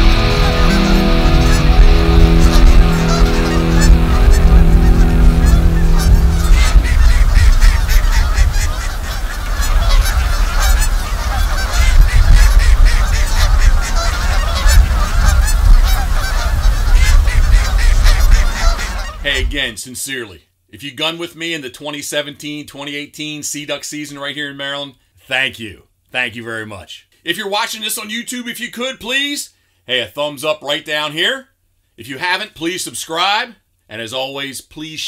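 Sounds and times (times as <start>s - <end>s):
held music chord: 0.0s - 8.9s
waterfowl honking: 0.0s - 19.5s
steady low rumble: 0.0s - 19.6s.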